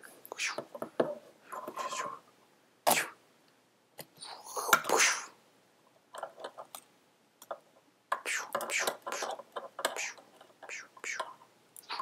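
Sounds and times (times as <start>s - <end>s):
breathy hissing mouth sounds: 0.2s - 0.7s, 4.2s - 5.4s, 8.2s - 9.4s, 10.0s - 12.0s.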